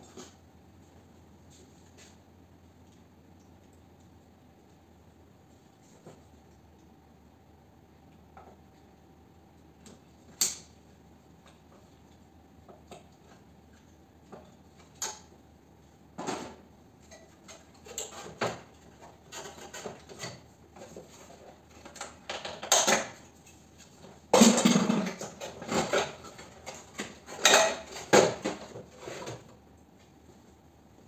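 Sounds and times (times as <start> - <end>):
plastic and metal parts clattering: 24.4 - 29.5.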